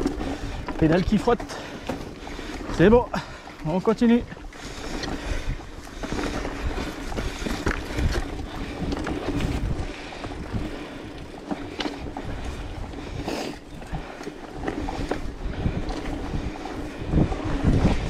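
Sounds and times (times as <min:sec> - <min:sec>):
bike rattling over bumps: 0:00.0 - 0:18.0
bike tyres crunching on dirt: 0:00.0 - 0:18.0
wind on microphone: 0:04.2 - 0:18.0.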